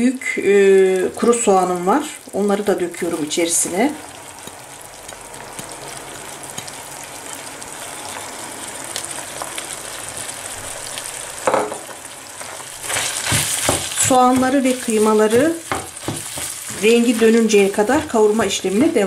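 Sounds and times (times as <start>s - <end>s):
meat and onions sizzling in a pan: 0.0s - 19.0s
wooden spoon scraping and stirring: 12.4s - 19.0s.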